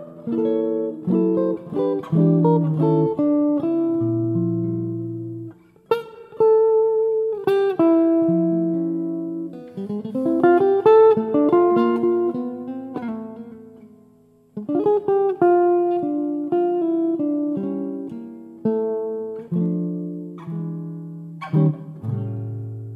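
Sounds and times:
solo jazz guitar chords: 0.0 - 22.9.

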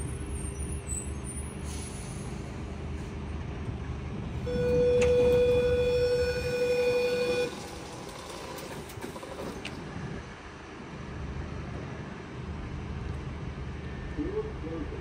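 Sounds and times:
train running rumble: 0.0 - 15.0
train horn blast: 4.4 - 8.0.

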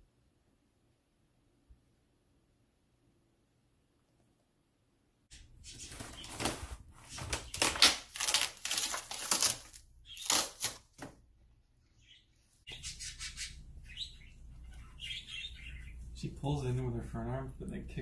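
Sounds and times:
dog tearing cardboard: 5.9 - 11.0.

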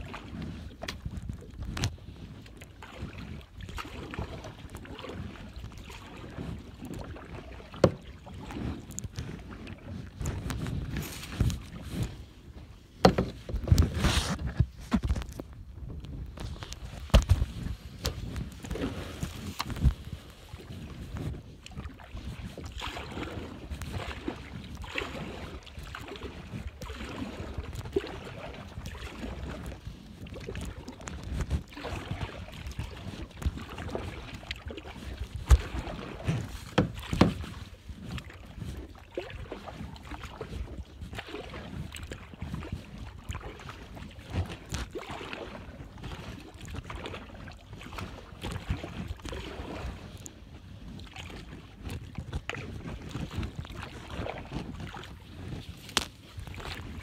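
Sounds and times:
paddle splashing water: 0.0 - 57.0
sharp knocks on kayak: 7.8 - 8.0, 13.0 - 13.8, 17.1 - 17.4, 35.5 - 37.5
wind buffeting microphone: 7.8 - 45.0, 47.8 - 57.0.

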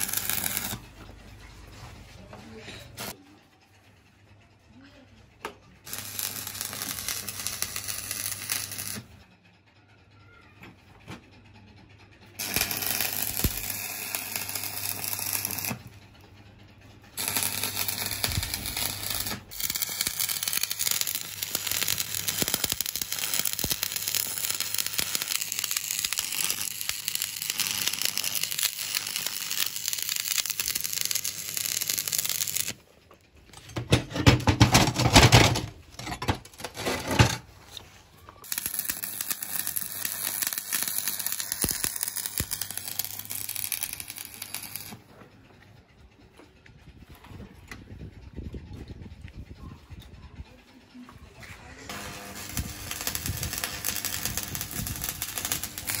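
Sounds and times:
welding arc crackling: 0.0 - 0.8, 2.9 - 3.2, 5.8 - 9.1, 12.4 - 15.9, 17.2 - 32.8, 38.4 - 45.0, 51.9 - 56.0.

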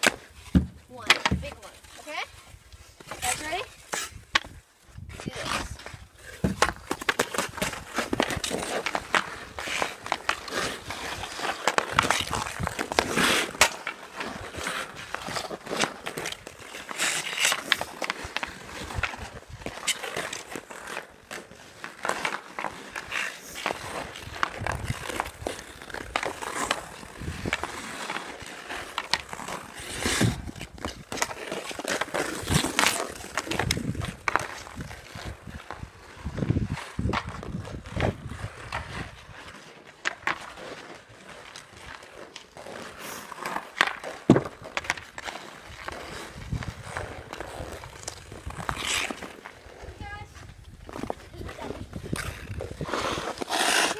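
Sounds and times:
skate blades scraping ice: 0.0 - 53.9
hockey stick clicking puck: 43.4 - 45.3.

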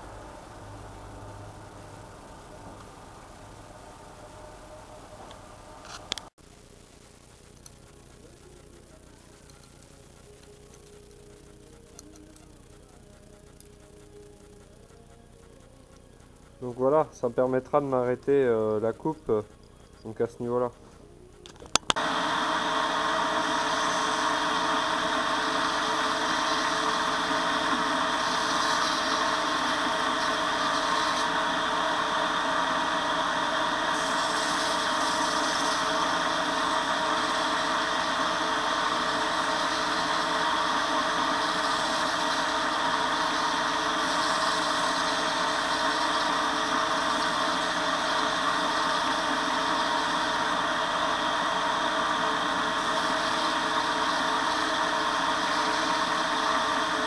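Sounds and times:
belt grinder whirring: 21.8 - 57.0.

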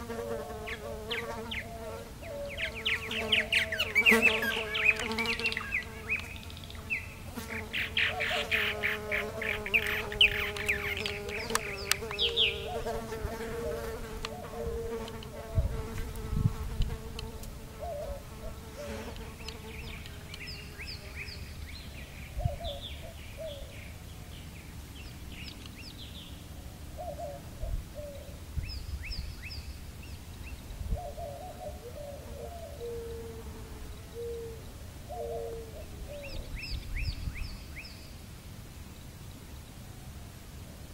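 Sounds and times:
birds chirping and gurgling: 0.0 - 15.4
insect buzzing: 0.0 - 22.0.

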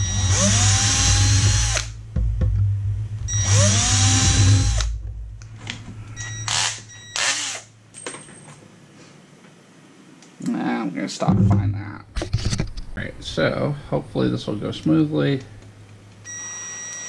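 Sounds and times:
cordless drill whining: 0.0 - 1.9, 3.4 - 4.9, 6.2 - 7.7, 16.3 - 17.0.

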